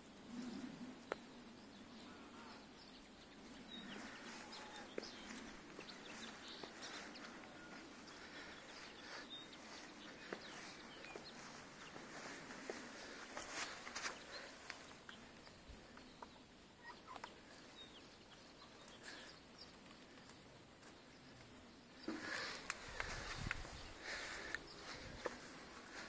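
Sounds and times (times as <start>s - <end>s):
chickens making soft sounds: 0.0s - 26.0s
faint high bird chirps: 16.0s - 19.7s.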